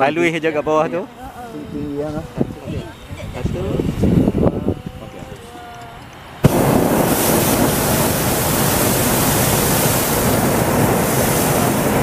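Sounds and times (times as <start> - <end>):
propane burner rushing hiss: 6.2 - 12.0.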